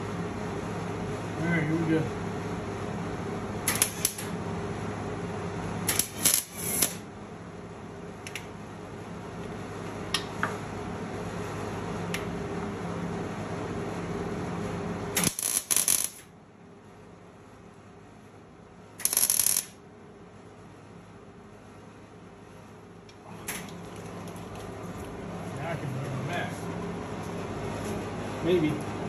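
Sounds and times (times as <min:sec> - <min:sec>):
steady low hum: 0:00.0 - 0:29.0
welding arc crackling: 0:03.6 - 0:04.4, 0:05.8 - 0:07.1, 0:15.2 - 0:16.3, 0:19.0 - 0:19.8.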